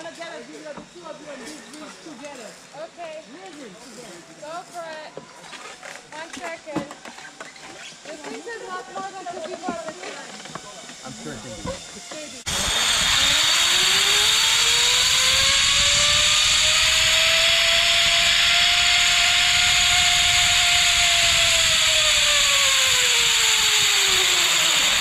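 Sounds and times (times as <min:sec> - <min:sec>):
zipline trolley rushing on cable: 0:05.6 - 0:25.0.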